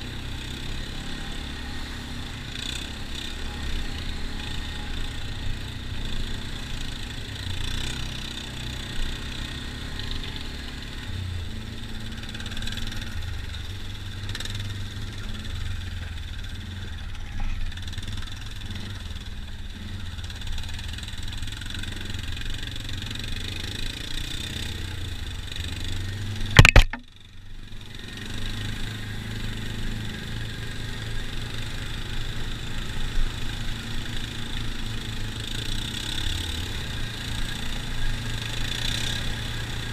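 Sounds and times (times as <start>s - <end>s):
quad engine running: 0.0s - 39.9s
sharp loud knock: 26.6s - 27.0s.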